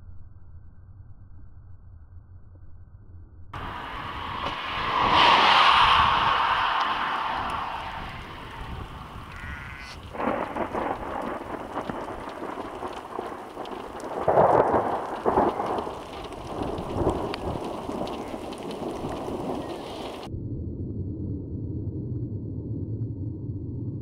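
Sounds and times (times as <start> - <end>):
thunder rumbling: 3.6 - 20.3.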